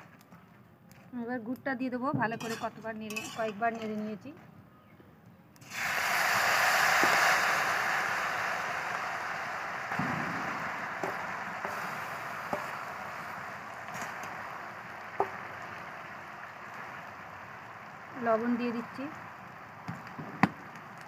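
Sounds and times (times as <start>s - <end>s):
sizzling in hot oil: 5.6s - 21.0s.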